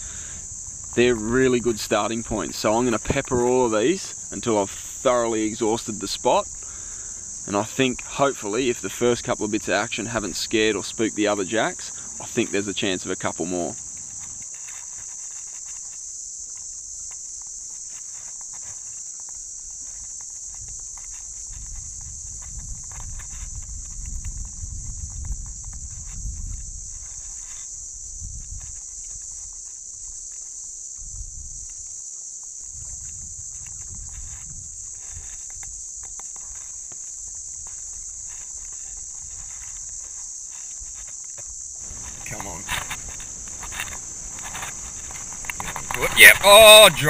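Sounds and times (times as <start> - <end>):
high-pitched insect drone: 0.0 - 47.0.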